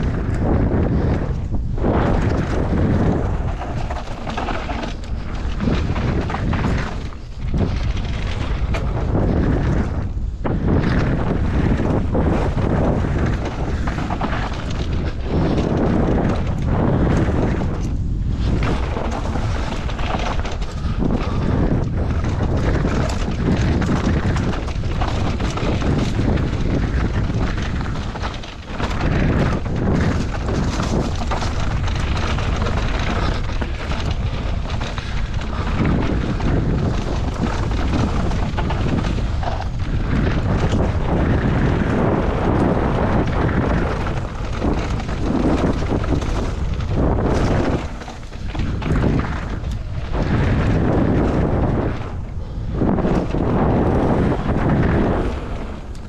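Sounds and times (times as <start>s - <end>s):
bike rattling: 0.0s - 56.0s
bike tyres on dirt trail: 0.0s - 56.0s
wind rushing over microphone: 0.0s - 56.0s.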